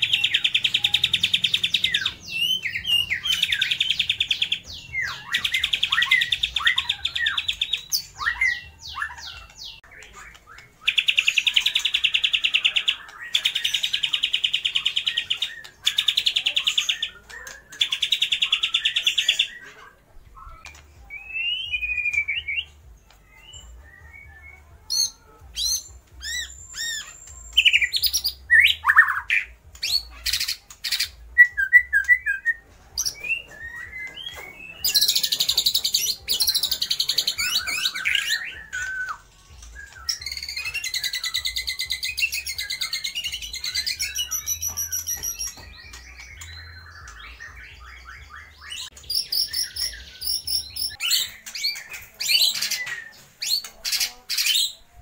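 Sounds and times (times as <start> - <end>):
bird singing with buzzy trills: 0.0 - 19.6, 20.4 - 55.0.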